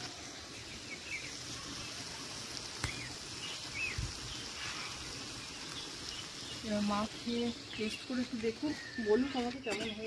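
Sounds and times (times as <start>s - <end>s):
bird chirping: 0.5s - 2.1s, 2.8s - 10.0s.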